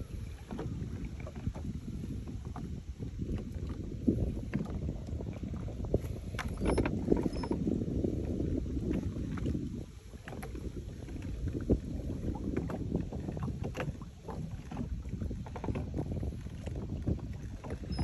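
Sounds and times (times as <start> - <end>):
wind rumbling on microphone: 0.0 - 18.0.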